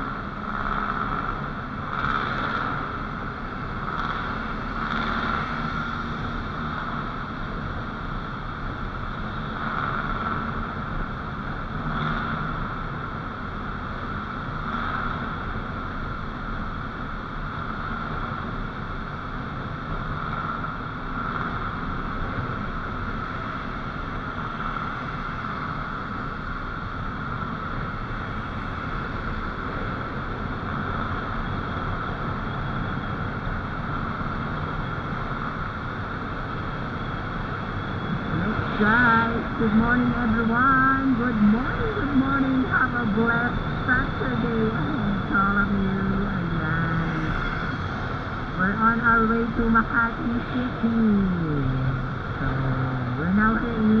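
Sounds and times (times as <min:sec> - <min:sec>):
motorcycle engine: 0:00.0 - 0:08.3, 0:51.4 - 0:54.0
road noise: 0:00.0 - 0:54.0.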